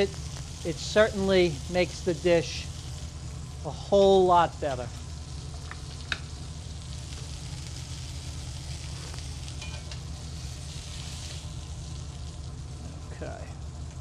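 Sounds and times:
meat sizzling in a skillet: 0:00.0 - 0:13.8
tongs clinking against pan: 0:09.6 - 0:10.0.

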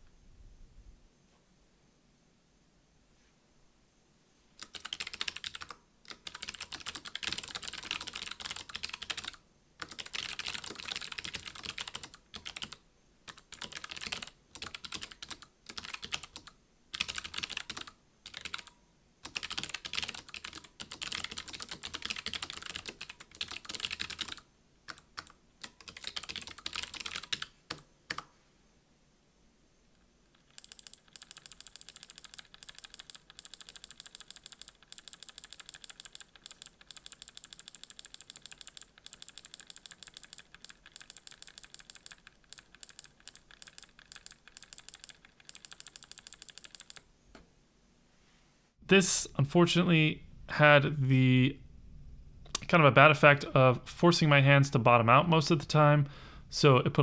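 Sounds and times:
clicky keyboard typing: 0:04.6 - 0:28.3, 0:30.3 - 0:47.0.

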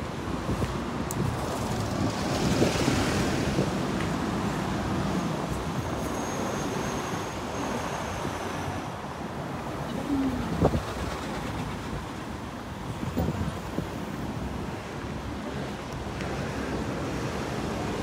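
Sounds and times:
passing buses and cars: 0:00.0 - 0:18.0
wind buffeting microphone: 0:00.2 - 0:05.8, 0:10.0 - 0:14.8.

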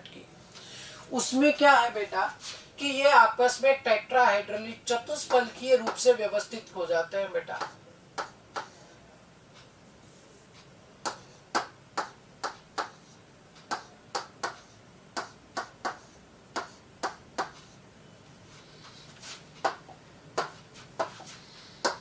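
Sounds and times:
pen tapping on glass: 0:11.1 - 0:13.0, 0:15.2 - 0:17.6.

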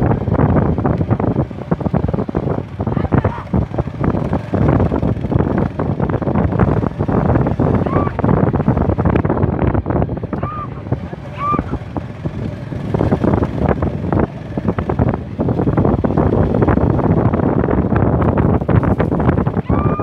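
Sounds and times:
wind buffeting microphone: 0:00.0 - 0:20.0
knocks and rattles: 0:18.1 - 0:19.6.

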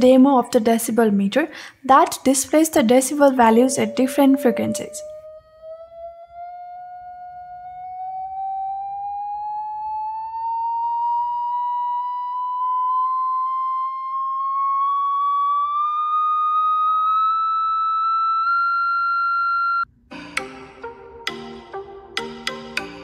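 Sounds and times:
rising sine-wave test tone: 0:03.2 - 0:19.9.

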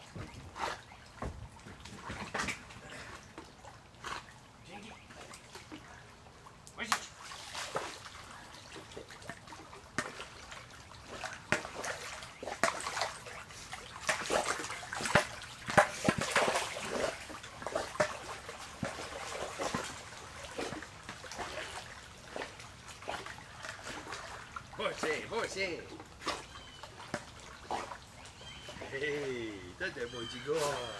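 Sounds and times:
dog splashing in water: 0:06.7 - 0:25.2, 0:26.0 - 0:29.2.

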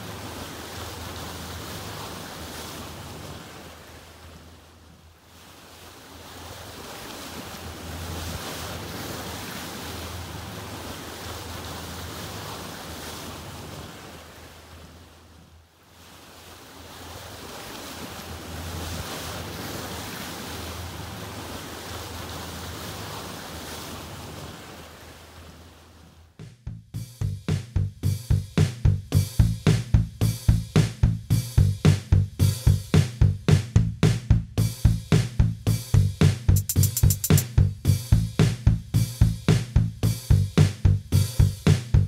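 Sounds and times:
water noise: 0:00.0 - 0:42.0
drum music: 0:26.4 - 0:42.0.

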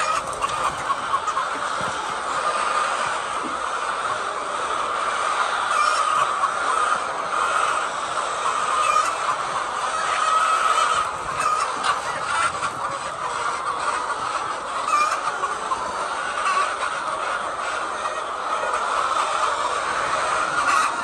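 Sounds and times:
hens calling: 0:00.0 - 0:21.0.

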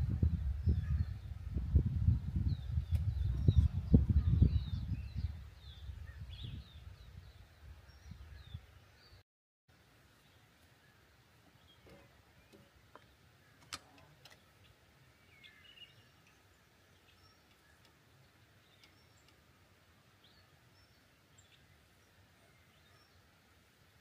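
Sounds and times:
faint bird chirps: 0:10.2 - 0:23.3
sharp clicks: 0:13.6 - 0:14.4.

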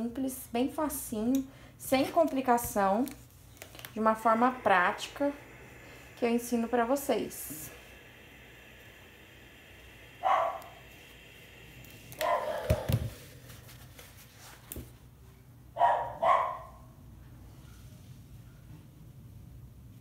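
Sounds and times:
dog barking: 0:10.2 - 0:10.7, 0:12.2 - 0:12.9, 0:15.8 - 0:16.9.

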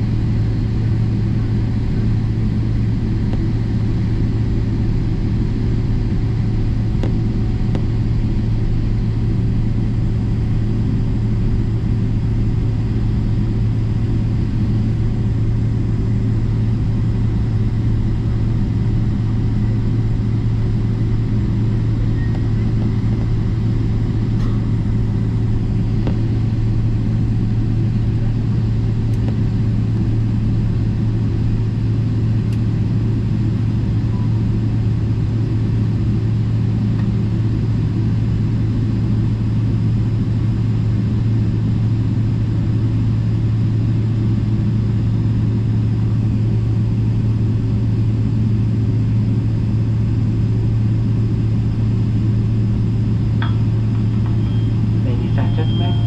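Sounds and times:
airliner cabin rumble and hum: 0:00.0 - 0:56.0.

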